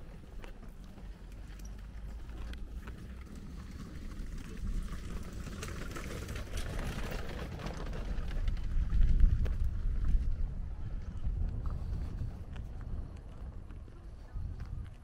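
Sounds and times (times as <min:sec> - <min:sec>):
wind buffeting microphone: 0:03.5 - 0:15.0.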